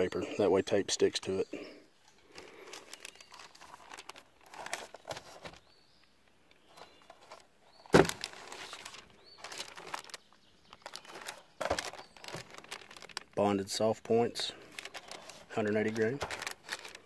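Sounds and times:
cardboard boxes rustling: 0:02.8 - 0:05.7, 0:06.7 - 0:10.2, 0:10.8 - 0:13.2, 0:14.7 - 0:17.0
box knocking down: 0:07.9 - 0:08.3.

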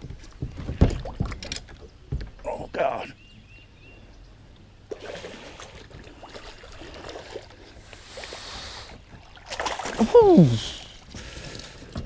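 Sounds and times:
water sloshing and splashing: 0:00.0 - 0:02.3, 0:04.8 - 0:12.0.

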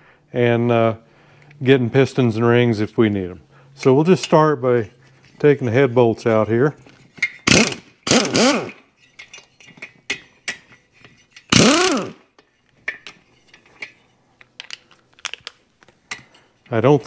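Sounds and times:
power driver spinning: 0:06.8 - 0:08.8, 0:11.0 - 0:12.2
metallic clicks of socket and nuts: 0:12.4 - 0:16.3.

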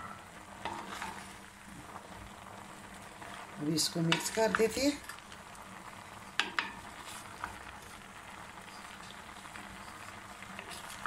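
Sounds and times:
vegetables sizzling: 0:00.0 - 0:11.0
wooden spoon knocking pot: 0:04.1 - 0:04.6, 0:06.4 - 0:06.8.

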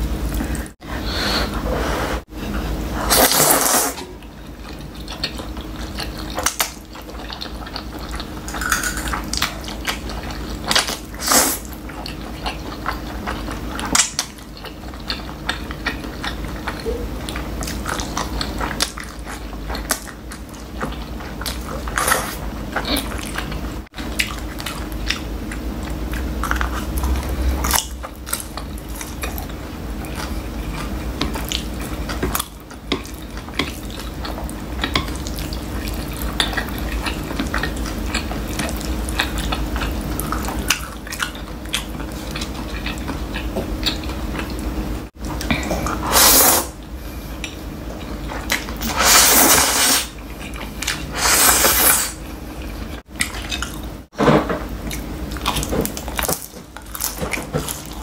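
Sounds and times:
wet noodle slurps: 0:03.0 - 0:04.0, 0:45.9 - 0:46.8, 0:48.8 - 0:50.1, 0:51.1 - 0:52.2.

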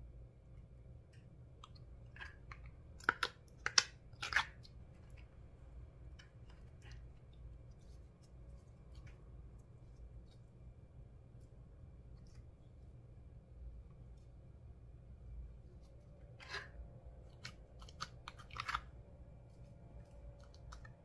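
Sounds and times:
sticky clicks and crackles: 0:17.3 - 0:19.0, 0:19.9 - 0:21.0.

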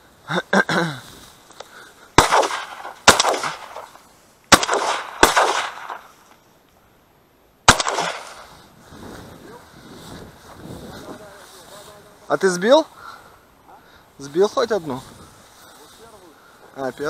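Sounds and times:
shotgun shots: 0:02.2 - 0:06.1, 0:07.7 - 0:08.5.

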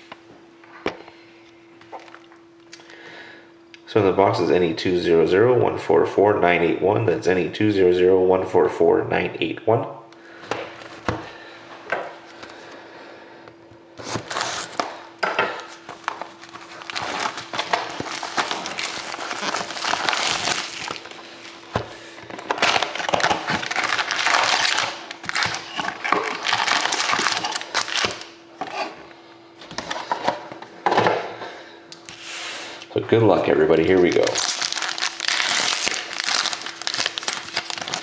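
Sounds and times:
faint steady hum: 0:00.0 - 0:38.0
cardboard rustling and scraping: 0:14.0 - 0:14.9
plastic wrapping crinkling: 0:15.6 - 0:28.4, 0:33.8 - 0:38.0.

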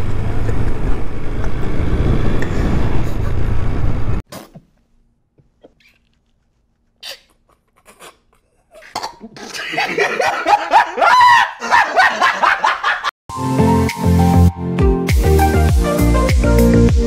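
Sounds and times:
man laughing high-pitched: 0:07.3 - 0:13.1
electronic music: 0:13.3 - 0:17.0.

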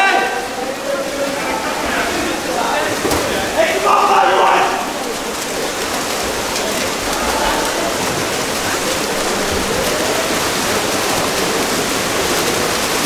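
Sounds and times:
water splashing and churning: 0:00.0 - 0:13.0.

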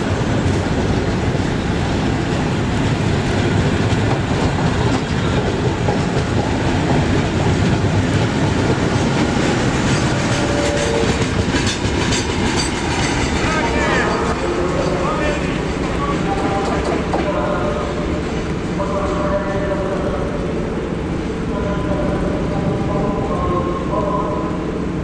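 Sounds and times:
train wheels clacking over rails: 0:00.0 - 0:19.3.

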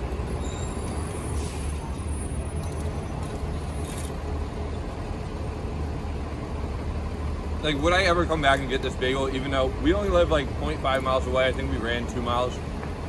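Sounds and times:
bus engine idling: 0:00.0 - 0:13.0
short faint hisses: 0:01.2 - 0:01.9.

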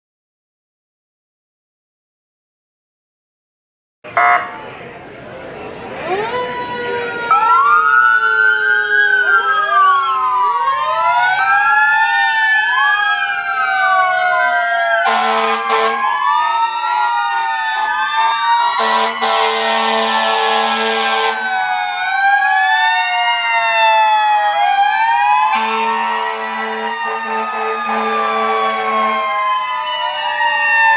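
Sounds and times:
sirens wailing and yelping: 0:05.8 - 0:30.9
fire truck air horn blasts: 0:15.0 - 0:16.2, 0:18.8 - 0:21.5, 0:25.5 - 0:29.3.

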